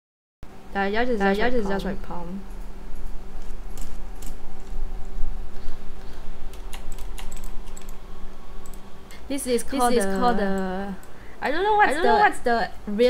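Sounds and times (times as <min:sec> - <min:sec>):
low electrical hum: 0:00.5 - 0:13.0
keyboard and mouse clicks: 0:06.5 - 0:08.0.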